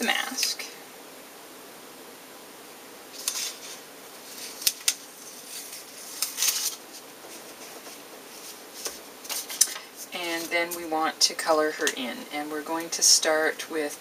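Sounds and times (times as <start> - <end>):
paper rustling and crackling: 3.1 - 10.6.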